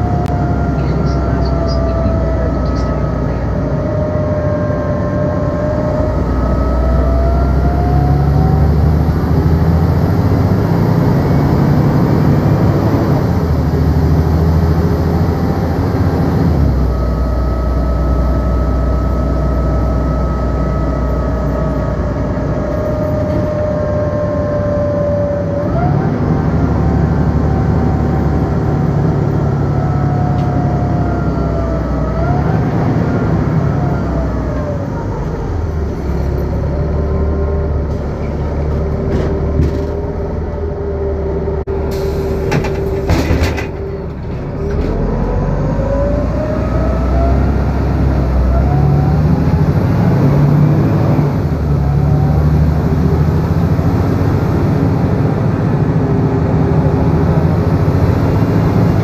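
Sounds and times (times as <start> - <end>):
bus engine drone: 0.0 - 59.0
engine whine: 0.0 - 59.0.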